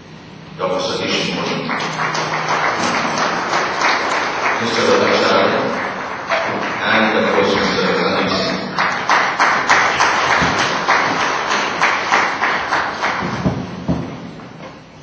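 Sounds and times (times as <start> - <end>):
audience applauding: 1.2 - 14.0
single sharp claps: 1.7 - 7.8, 8.8 - 13.6.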